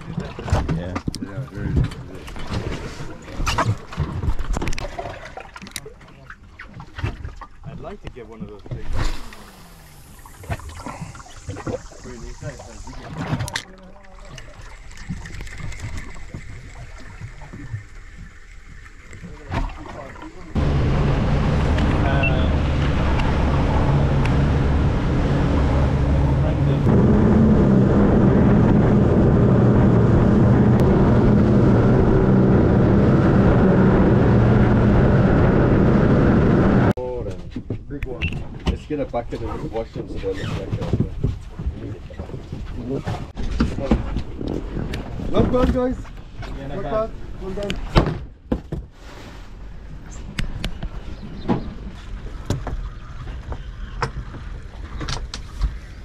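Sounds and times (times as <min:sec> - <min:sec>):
boat engine running: 0:06.8 - 0:37.2
constant rushing noise: 0:20.5 - 0:37.0.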